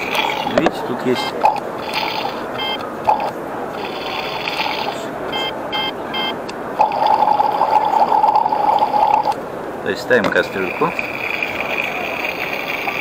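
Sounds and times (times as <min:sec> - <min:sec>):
toy burner bubbling sound effect: 0:10.6 - 0:13.0.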